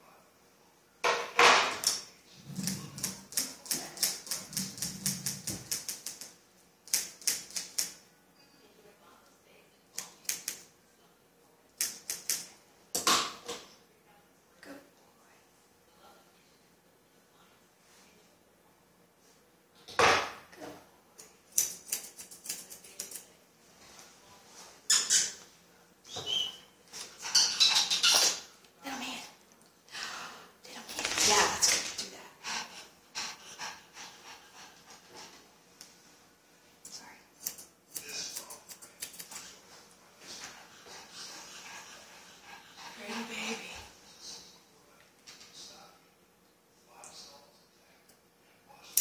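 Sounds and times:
scissors snipping hair: 2.6 - 8.0, 10.0 - 10.7, 11.8 - 12.5, 21.2 - 23.3, 36.8 - 39.5.

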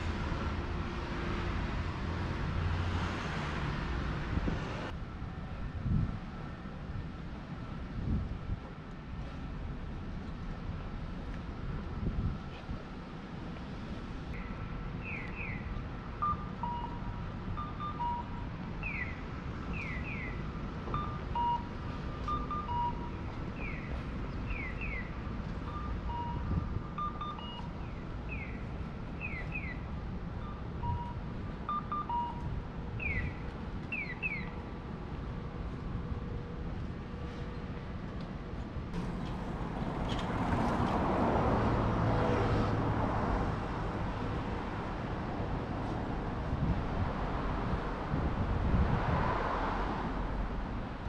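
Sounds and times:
street traffic noise: 0.0 - 51.0
electronic bird call chirps: 14.4 - 20.4.

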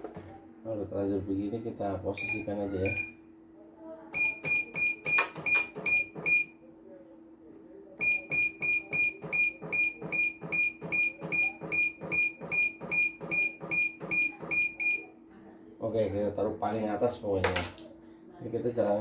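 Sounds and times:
embroidery machine short high beeps: 2.2 - 3.2, 8.0 - 15.0.

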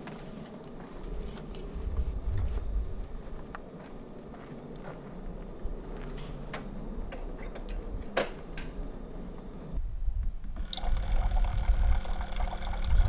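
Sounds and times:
low rumble: 1.0 - 3.6
liquid pouring and splashing: 10.6 - 13.0.

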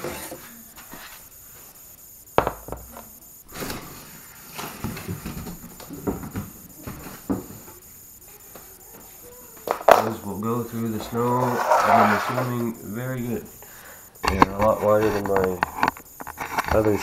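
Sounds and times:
rustling and scraping: 0.0 - 1.8, 11.0 - 12.7, 14.2 - 17.0.

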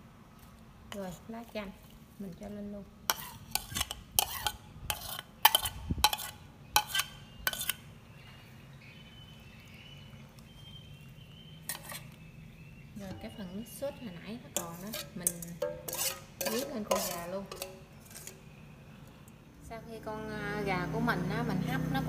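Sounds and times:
metal spoon scraping a plate: 3.1 - 7.9, 11.6 - 12.2, 14.5 - 18.5.

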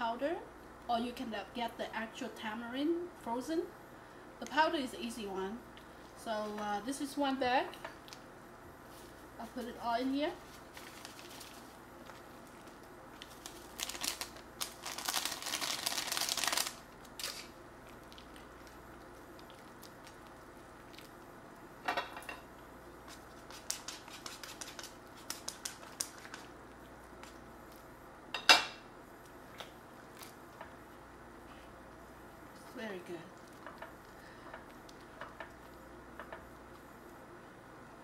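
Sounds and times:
paper packet rustling: 10.4 - 17.5.

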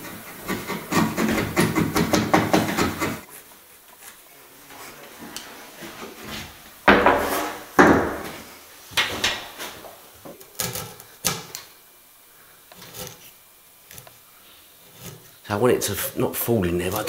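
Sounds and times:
wooden knocks of timber: 0.9 - 3.2, 6.9 - 8.4.

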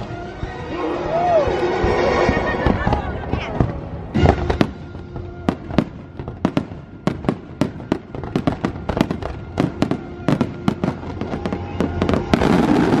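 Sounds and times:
fireworks bursting: 1.3 - 13.0.

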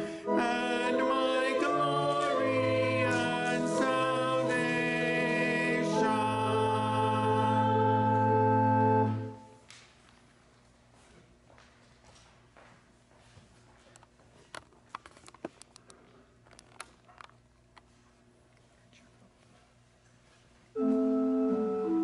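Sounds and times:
voices singing a hymn: 0.0 - 9.4
organ: 0.0 - 9.6, 20.8 - 22.0.

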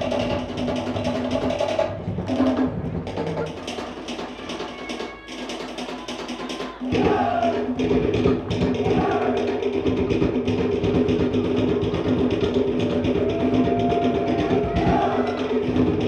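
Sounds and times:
deeper drums: 0.0 - 16.0
wooden log drums beating: 0.0 - 16.0
voices singing: 4.3 - 10.1, 13.0 - 16.0.

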